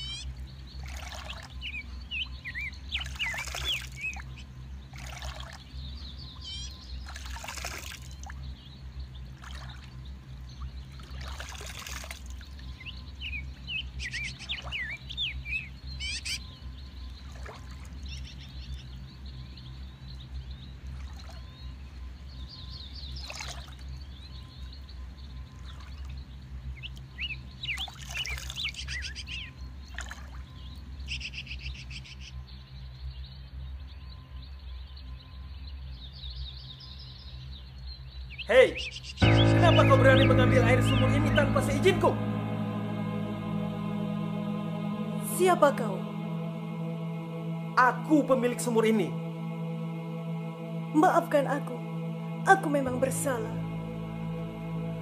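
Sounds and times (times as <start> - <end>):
water splashes: 0.8 - 1.6, 3.0 - 4.3, 4.9 - 5.6, 7.0 - 8.4, 9.4 - 9.9, 10.9 - 12.6, 17.3 - 18.0
steady low hum: 39.2 - 55.0.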